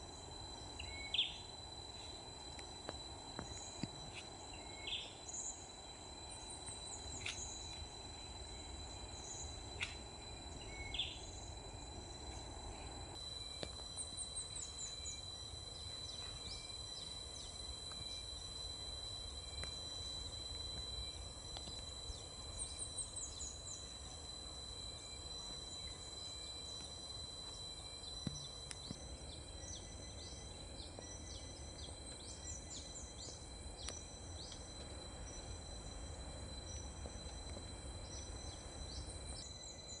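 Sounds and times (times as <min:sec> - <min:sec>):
high-pitched insect drone: 0:00.0 - 0:40.0
bird chirps: 0:00.8 - 0:01.5, 0:09.2 - 0:11.5.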